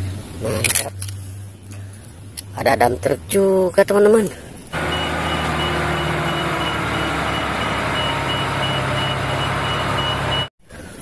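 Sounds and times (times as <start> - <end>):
diesel truck engine running: 4.8 - 10.5
reversing alarm beeping: 4.8 - 10.5.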